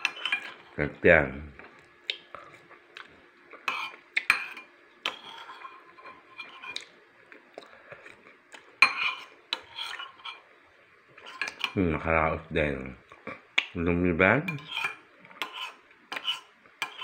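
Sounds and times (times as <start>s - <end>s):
cutlery clinking on plate: 0.0s - 0.6s, 3.6s - 6.8s, 8.8s - 10.4s, 14.5s - 17.0s.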